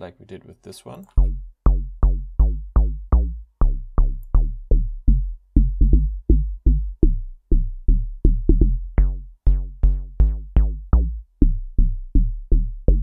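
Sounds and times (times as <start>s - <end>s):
deep sub bass: 1.0s - 13.0s
plucky synth bass notes: 1.0s - 13.0s.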